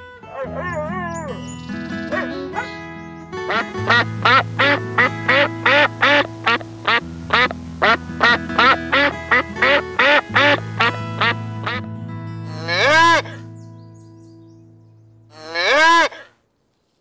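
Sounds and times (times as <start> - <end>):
background music with bass line: 0.0 - 14.4
short animal calls: 15.3 - 16.4.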